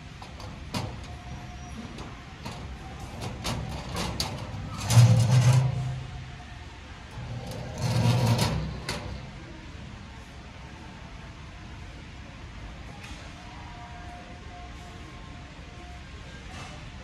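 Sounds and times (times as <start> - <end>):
metal door clattering: 1.8 - 6.3, 7.1 - 9.4.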